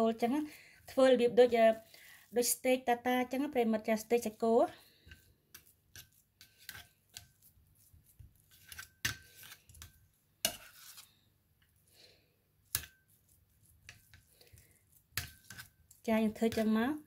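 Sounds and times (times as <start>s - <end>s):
metal spoon scraping metal mould: 4.2s - 11.2s, 12.7s - 17.0s.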